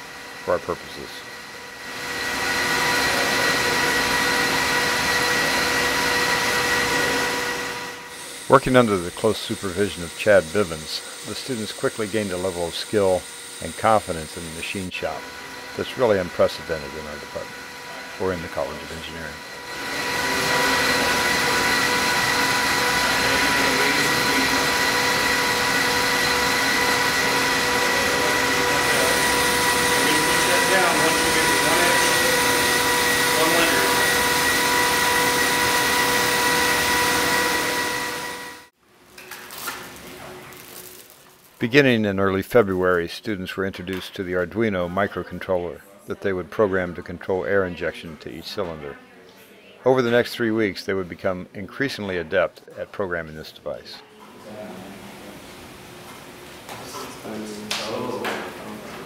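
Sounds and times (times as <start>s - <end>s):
metal lathe whining: 0.0s - 38.7s.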